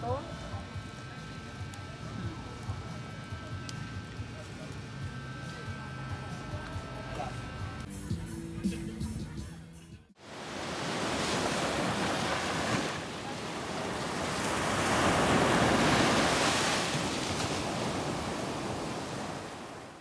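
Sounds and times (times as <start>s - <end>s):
waves breaking on beach: 10.2s - 20.0s.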